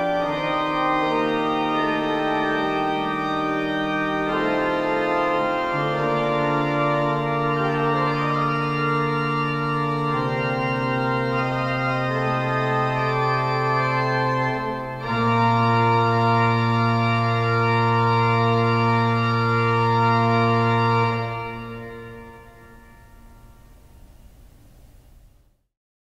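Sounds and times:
pipe organ chords: 0.0 - 24.6.

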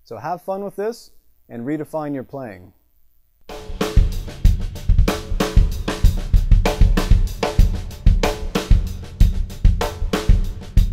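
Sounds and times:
drum kit groove: 3.5 - 10.9.

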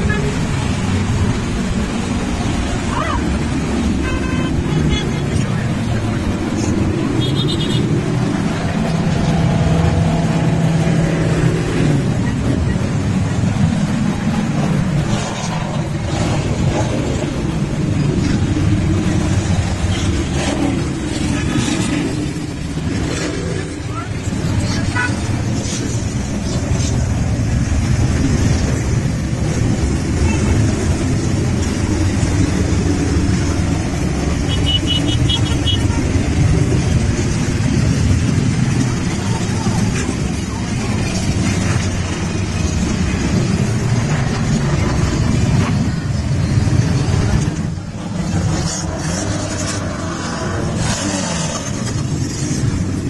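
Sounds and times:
motorcycle engines running: 0.0 - 53.0.

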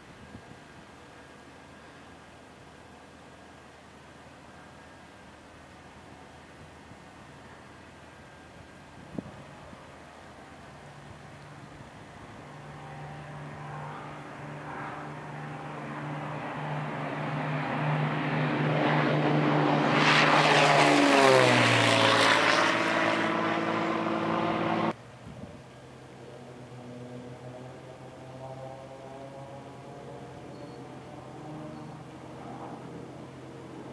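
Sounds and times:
propeller plane engine droning: 0.0 - 33.9.

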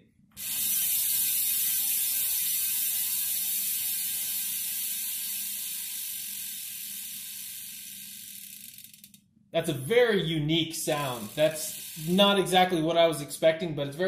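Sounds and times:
bicycle freehub ratcheting whir: 0.4 - 9.3, 10.8 - 12.7.

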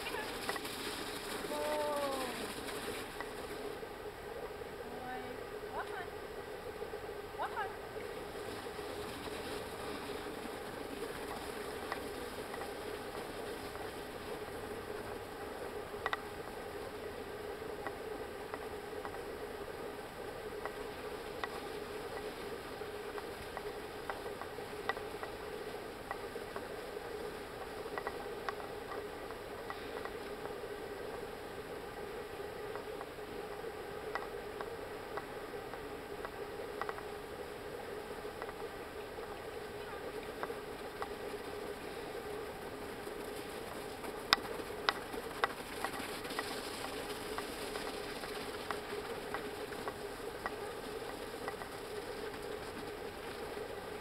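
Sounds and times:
faint steady hum: 0.0 - 54.0
steady hiss: 0.0 - 54.0
footsteps and hooves on ice: 38.3 - 54.0.

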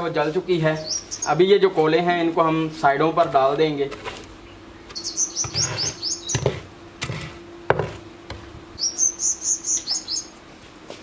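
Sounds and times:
small bird chirping: 0.8 - 1.5, 4.4 - 6.6, 8.8 - 10.4
wooden plank knocking on oven floor: 6.3 - 8.4.

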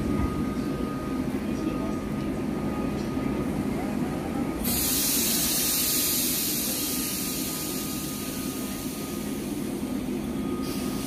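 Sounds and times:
freight train rumbling: 0.0 - 11.0
compressed air hissing: 4.6 - 9.6.

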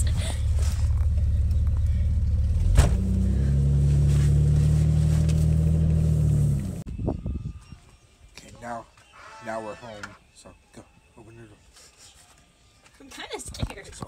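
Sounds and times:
car engine and road rumble: 0.0 - 6.9.

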